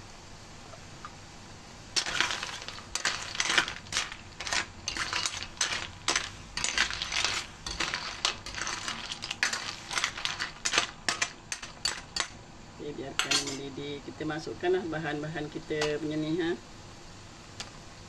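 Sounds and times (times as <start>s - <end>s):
snail shells clattering in a wok: 1.9s - 12.4s, 13.1s - 13.7s.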